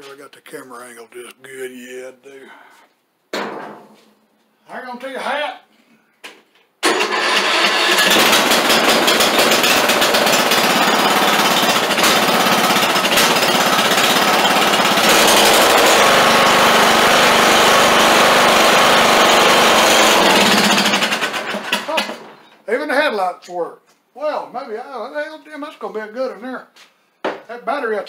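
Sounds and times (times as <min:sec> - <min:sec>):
mower engine running loudly: 0:06.8 - 0:22.4.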